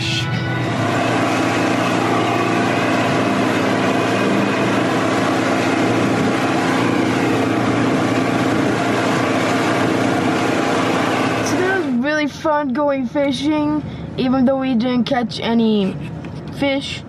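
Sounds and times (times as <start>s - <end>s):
motorboat engine droning: 0.0s - 17.0s
water rushing past hull: 0.7s - 12.0s.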